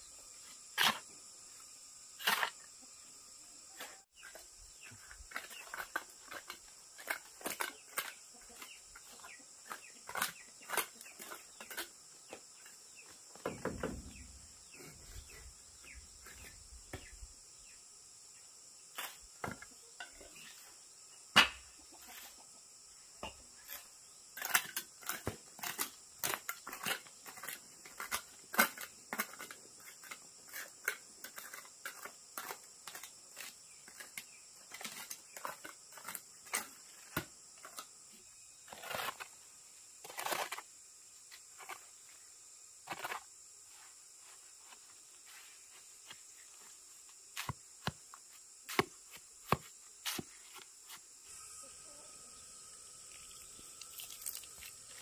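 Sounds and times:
trowel scraping stony earth: 0.3s - 1.2s, 2.1s - 2.7s, 3.7s - 13.3s, 18.9s - 20.8s, 23.6s - 51.5s, 53.0s - 55.0s
high insect buzz: 32.6s - 55.0s.

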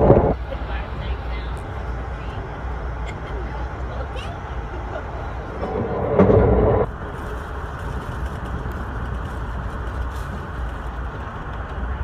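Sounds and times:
train coach running rumble: 0.0s - 12.0s.

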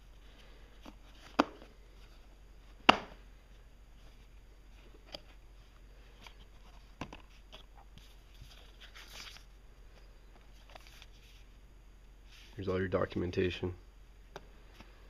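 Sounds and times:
paper rustling: 6.1s - 9.5s, 10.5s - 11.4s.

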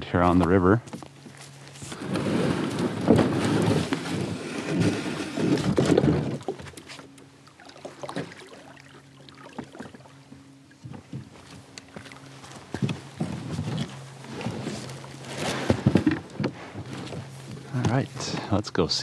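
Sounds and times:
kayak hull scraping over gravel: 1.3s - 7.2s, 10.8s - 18.6s.

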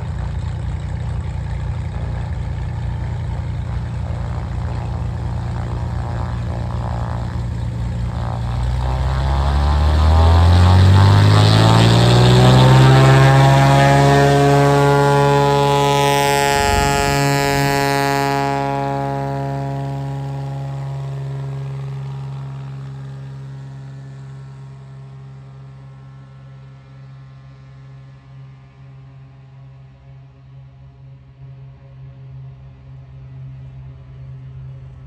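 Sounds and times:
propeller plane engine: 0.0s - 35.0s.

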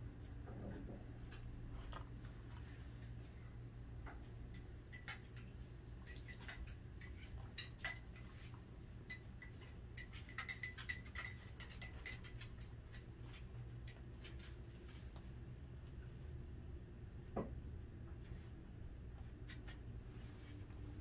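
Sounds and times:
low steady hum: 0.0s - 21.0s
dog chewing with crunchy clicks: 4.1s - 14.6s.

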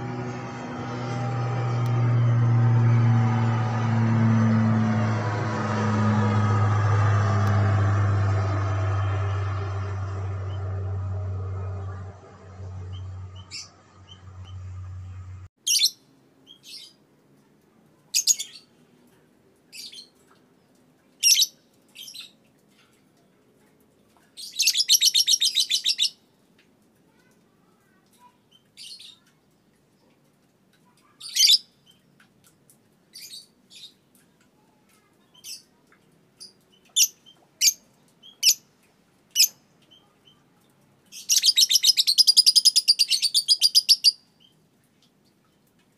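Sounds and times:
low steady hum: 0.0s - 15.5s.

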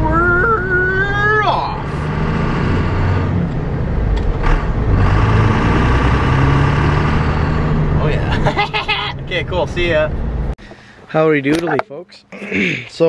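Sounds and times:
diesel truck engine pulling away: 0.0s - 8.5s.

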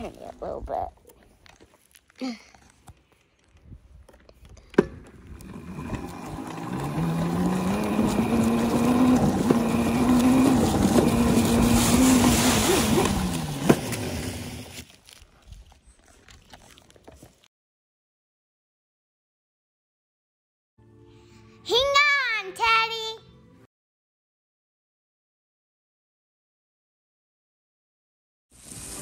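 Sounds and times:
small motorbike motor whine: 4.8s - 14.8s
rushing ride noise: 5.5s - 14.4s.

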